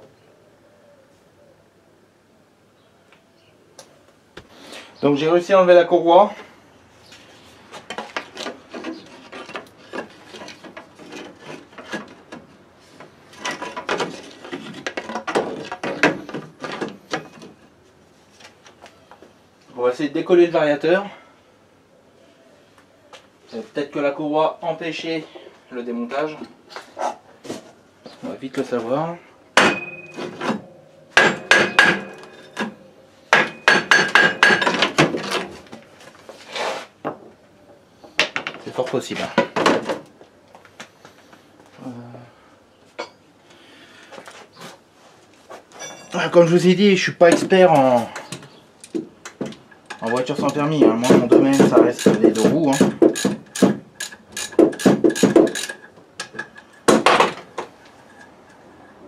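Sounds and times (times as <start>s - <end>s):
metallic ring: 29.6s - 34.7s, 45.8s - 46.2s
wooden block knocking on metal: 31.2s - 32.4s, 33.3s - 35.1s, 50.0s - 53.8s.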